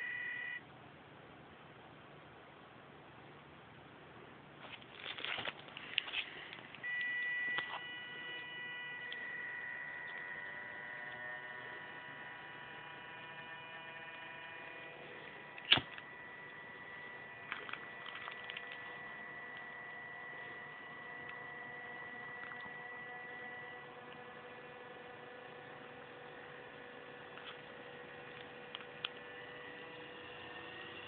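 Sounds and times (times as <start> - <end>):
small fan motor whining: 0.0 - 0.6, 5.8 - 31.0
handling rustle: 4.6 - 6.8
sharp click: 15.6 - 16.0.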